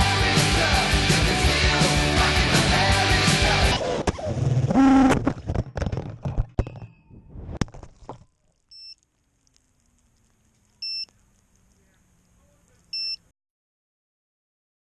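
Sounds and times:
rock music: 0:00.0 - 0:03.8.

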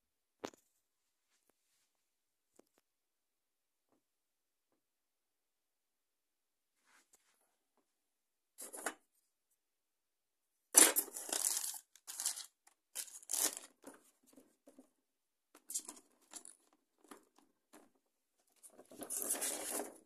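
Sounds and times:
polystyrene tray and plastic bag rustling: 0:10.8 - 0:13.8.

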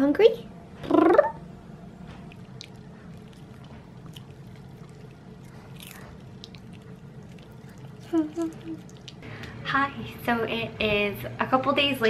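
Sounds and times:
steady low hum: 0:00.0 - 0:12.0
dog chewing: 0:02.1 - 0:09.2.

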